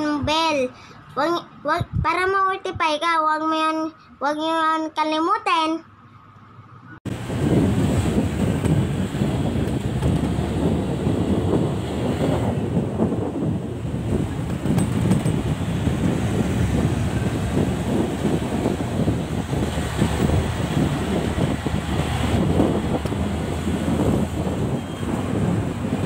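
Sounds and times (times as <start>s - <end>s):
road traffic noise: 0.0s - 2.0s, 3.7s - 26.0s
wind on microphone: 7.1s - 26.0s.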